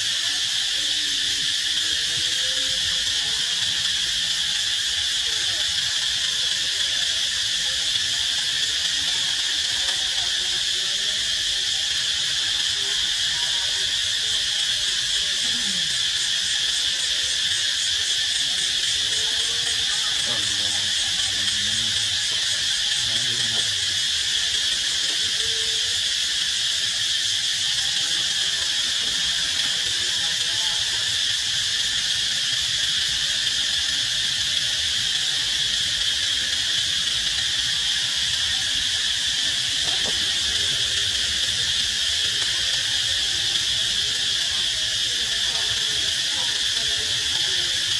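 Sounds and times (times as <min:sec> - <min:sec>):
insects droning: 0:00.0 - 0:47.9.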